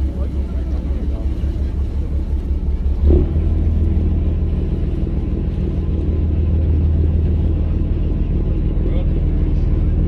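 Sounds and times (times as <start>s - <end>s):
engine rumbling: 0.0s - 10.0s.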